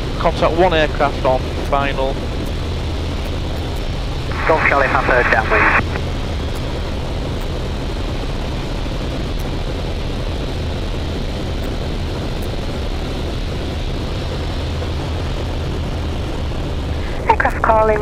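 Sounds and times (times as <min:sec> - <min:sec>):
light aircraft engine and propeller drone: 0:00.0 - 0:18.0
headset intercom hiss: 0:04.3 - 0:06.0.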